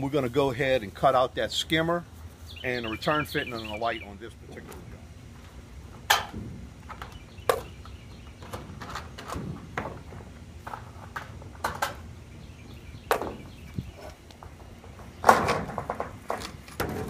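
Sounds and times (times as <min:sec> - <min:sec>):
metal panel clanks and knocks: 0:06.0 - 0:07.2, 0:08.4 - 0:12.1, 0:14.9 - 0:17.0.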